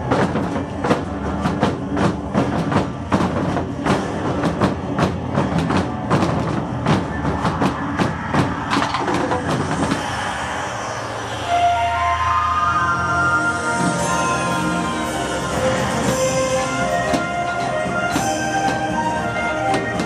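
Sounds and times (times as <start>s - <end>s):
rapid drumming: 0.0s - 10.3s, 15.0s - 20.0s
pitched music: 0.0s - 20.0s
low drone: 8.2s - 20.0s.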